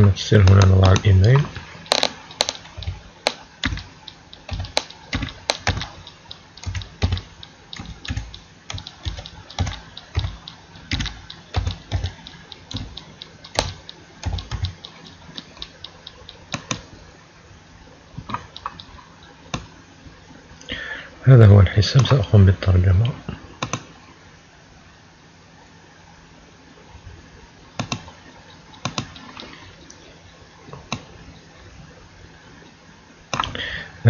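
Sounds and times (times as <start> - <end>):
computer keyboard typing: 0.4 - 16.9, 18.2 - 19.7, 27.8 - 29.6.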